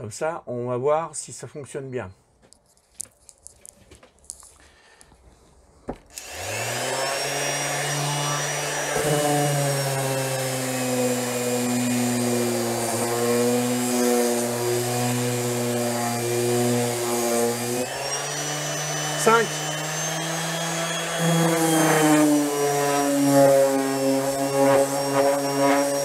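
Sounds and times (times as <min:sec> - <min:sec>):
orbital sander running: 0:06.1 - 0:26.0.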